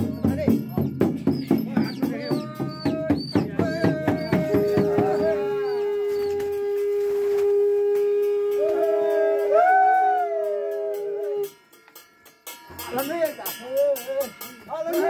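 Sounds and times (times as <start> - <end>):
jingling ring: 0.0 - 2.8, 11.6 - 15.0
drum beating: 0.0 - 15.0
long overlapping howls: 3.9 - 11.6.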